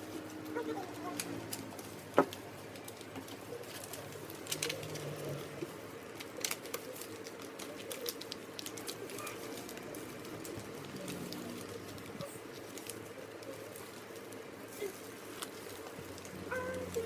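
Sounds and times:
paper folding crackles: 0:00.0 - 0:17.0.

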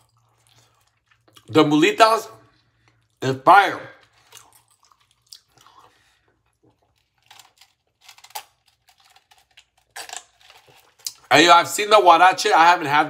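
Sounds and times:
chewing: 0:00.0 - 0:01.5, 0:04.0 - 0:11.3.

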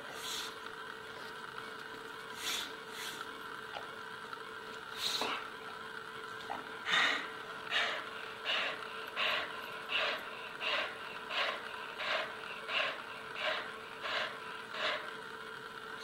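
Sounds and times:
dog gasping breaths: 0:06.8 - 0:15.2.

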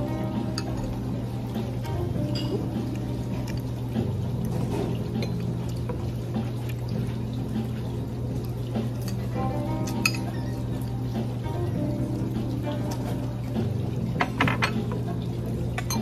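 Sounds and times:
background music: 0:00.0 - 0:16.0
cutlery clinking: 0:09.8 - 0:10.4, 0:14.2 - 0:15.0, 0:15.8 - 0:16.0.

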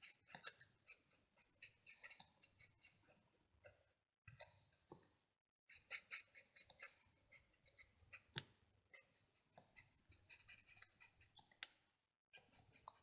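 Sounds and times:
marker tip scratching on cardstock: 0:05.7 - 0:11.4, 0:12.4 - 0:13.0.

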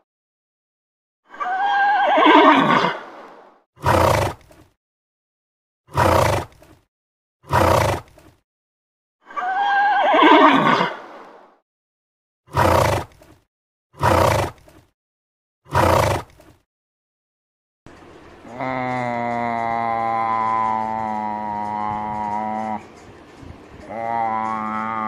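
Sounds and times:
horse whinnying: 0:01.3 - 0:03.0, 0:03.8 - 0:04.5, 0:05.9 - 0:06.6, 0:07.5 - 0:08.2, 0:09.3 - 0:11.1, 0:12.5 - 0:13.2, 0:14.0 - 0:14.7, 0:15.7 - 0:16.5, 0:23.9 - 0:25.0.

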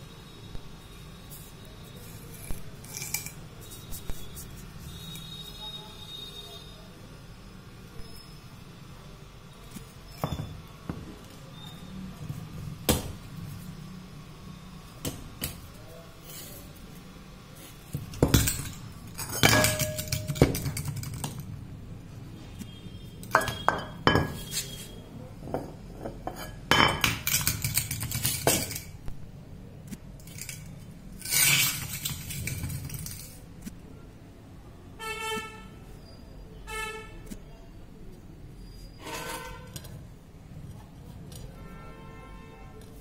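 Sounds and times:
metal fan parts clanking: 0:02.4 - 0:03.5, 0:17.9 - 0:21.5, 0:23.2 - 0:29.0, 0:30.1 - 0:33.4.

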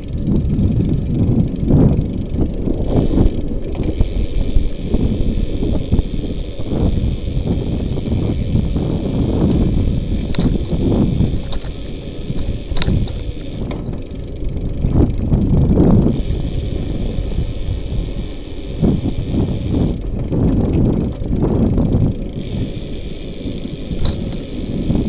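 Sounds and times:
light clicks from bumps: 0:00.0 - 0:25.0
wind buffeting microphone: 0:00.0 - 0:25.0.

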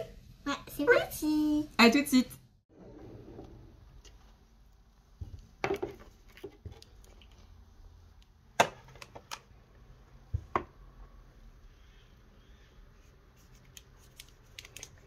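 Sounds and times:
containers knocking and clattering: 0:05.2 - 0:06.8.

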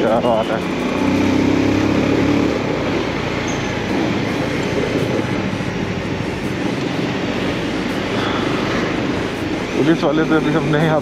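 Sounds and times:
motorcycle engine running: 0:00.0 - 0:11.0
wind and road noise: 0:00.0 - 0:11.0.

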